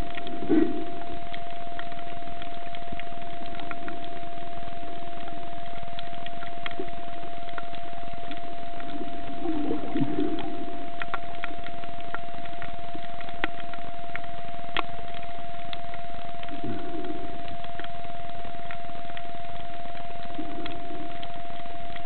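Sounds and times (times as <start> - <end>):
underwater hum: 0.0 - 22.0
low muffled swell: 8.9 - 11.0.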